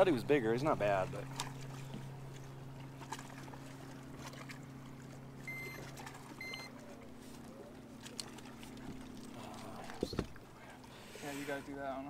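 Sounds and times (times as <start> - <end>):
low hum: 0.0 - 11.2
digital scale beeps: 5.5 - 5.8, 6.4 - 6.7.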